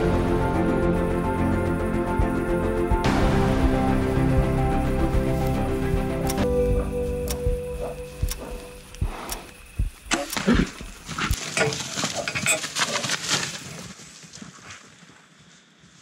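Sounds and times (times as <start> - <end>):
crackling and snapping of brush: 9.3 - 15.1.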